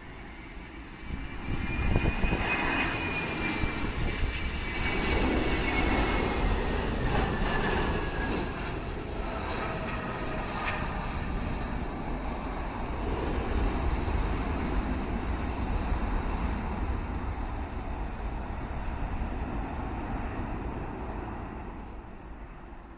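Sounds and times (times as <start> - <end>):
jet engines roaring: 0.0 - 22.9.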